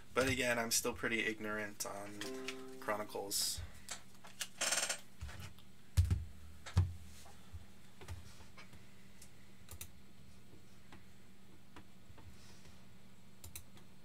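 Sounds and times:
computer keyboard clicks: 13.4s - 13.8s.

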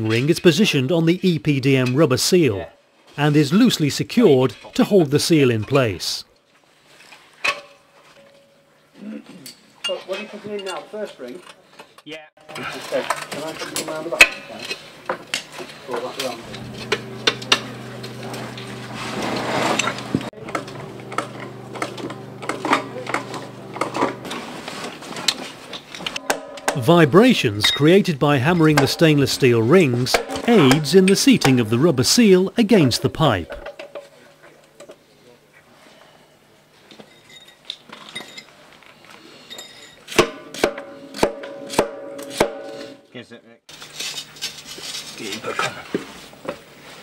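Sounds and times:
mechanical hum: 12.5s - 33.9s, 39.2s - 47.0s
hammer striking metal ring: 26.2s - 26.9s, 40.2s - 43.0s.

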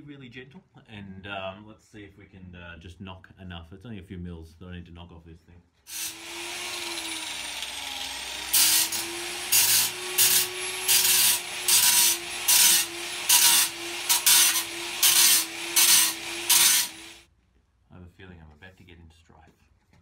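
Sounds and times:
angle grinder motor whine: 5.9s - 17.2s
grinding disc rasping on steel: 5.9s - 17.2s.

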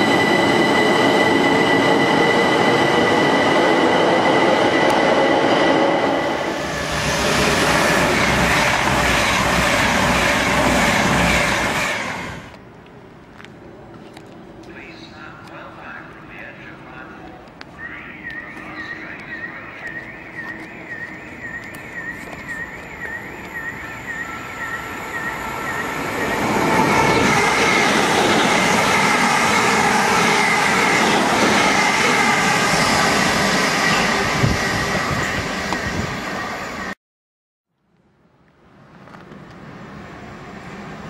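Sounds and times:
train wheels rushing on rail: 0.0s - 12.6s, 14.7s - 37.0s
train whining tones: 0.0s - 12.6s, 17.6s - 37.0s.

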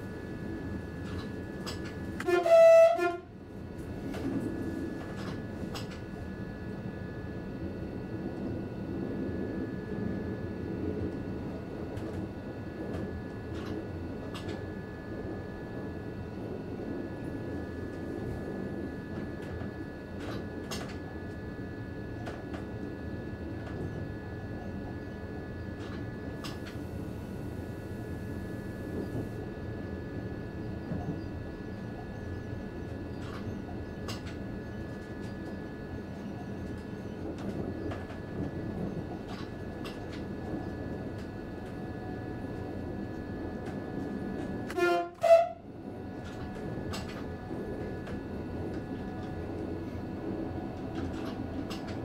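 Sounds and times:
train rumbling along track: 0.0s - 52.0s
high whine: 1.8s - 3.3s
train horn blast: 2.2s - 3.4s, 44.7s - 45.7s.

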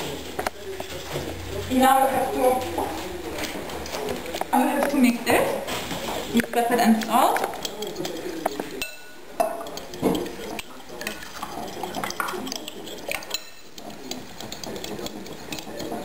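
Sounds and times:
fork beating egg in bowl: 0.0s - 16.0s
fork knocking on bowl: 6.4s - 16.0s.

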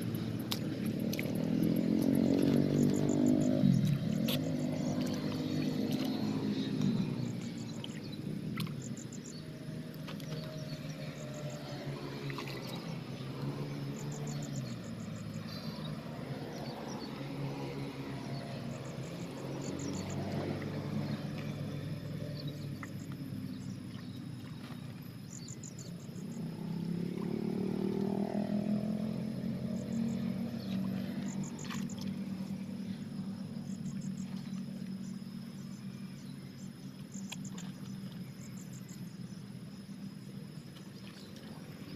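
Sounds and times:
crickets chirping: 0.0s - 41.9s
low droning hum: 0.0s - 41.9s.

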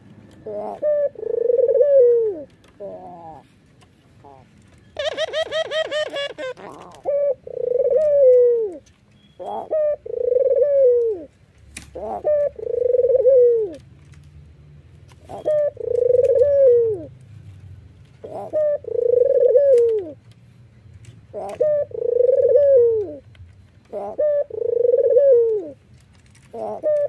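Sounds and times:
dove cooing: 0.4s - 3.5s, 4.2s - 8.8s, 9.4s - 11.3s, 11.9s - 13.8s, 15.2s - 17.2s, 18.2s - 20.2s, 21.3s - 25.8s, 26.4s - 27.0s.

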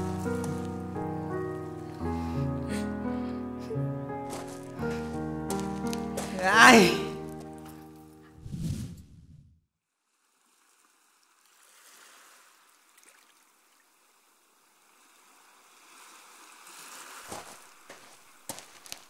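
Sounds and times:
sea surf on beach: 11.5s - 12.9s, 14.7s - 17.8s.

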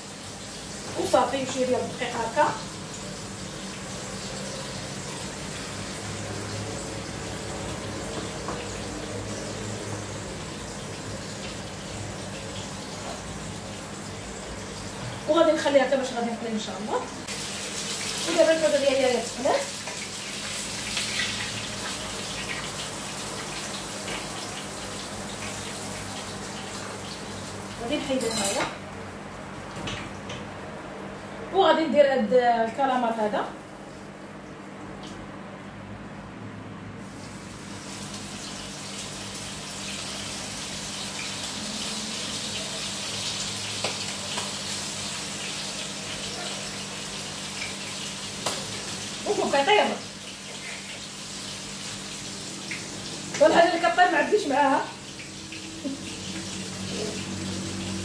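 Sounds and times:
oil sizzling in frying pan: 0.0s - 31.2s, 37.0s - 58.0s.

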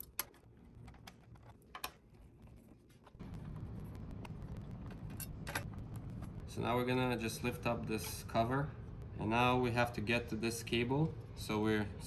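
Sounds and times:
steady low rumble: 3.2s - 12.0s.

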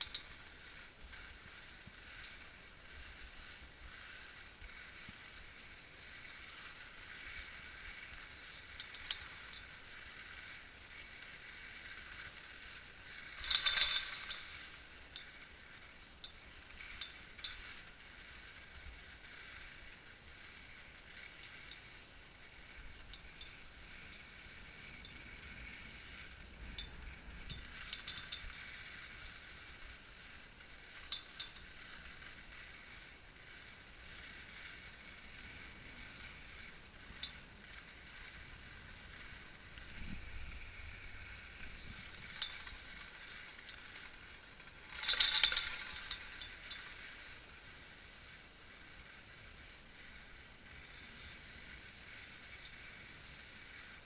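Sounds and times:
skis sliding over snow: 0.0s - 54.0s
clicks and rattles: 13.4s - 15.3s, 41.6s - 47.6s.

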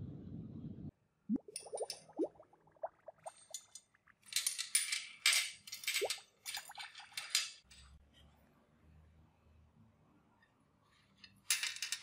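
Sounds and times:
watery drips and plops: 1.3s - 4.3s
metal parts clinking against glass: 3.5s - 7.9s, 11.4s - 12.0s.

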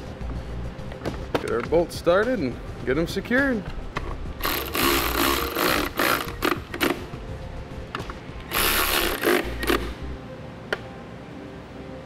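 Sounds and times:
electric ratchet running: 4.4s - 7.1s, 8.5s - 10.2s.

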